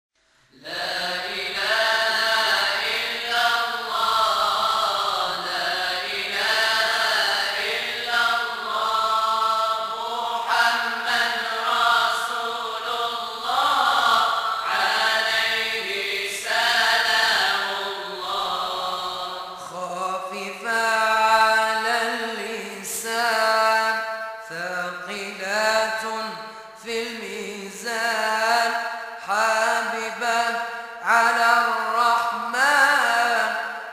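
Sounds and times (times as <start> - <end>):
voices chanting devotional song: 0.4 - 33.9.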